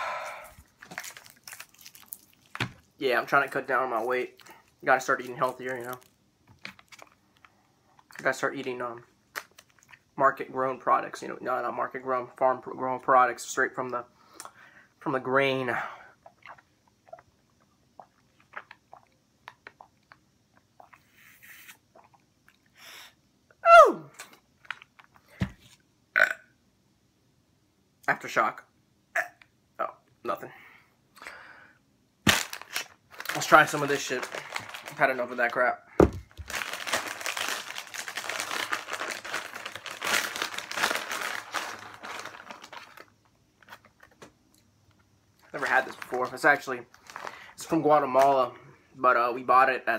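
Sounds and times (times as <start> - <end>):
plastic snack bag crinkling: 0.4 - 8.4, 32.3 - 44.3, 45.4 - 48.4
sipping through a straw: 20.8 - 22.2.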